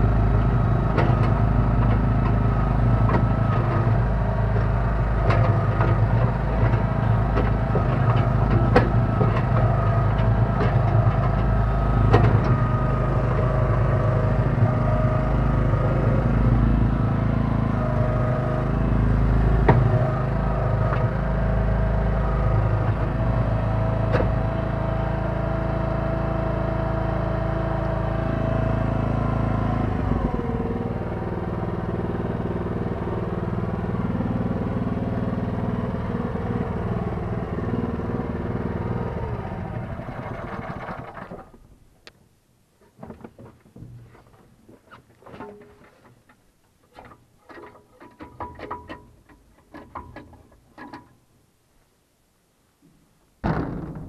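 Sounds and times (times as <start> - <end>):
backhoe engine whining under load: 0.0 - 41.8.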